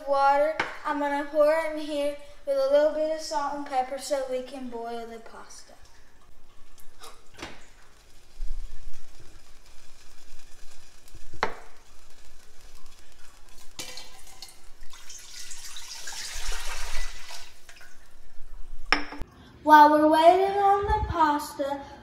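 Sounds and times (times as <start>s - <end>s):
water pouring into metal pot: 5.2s - 18.9s.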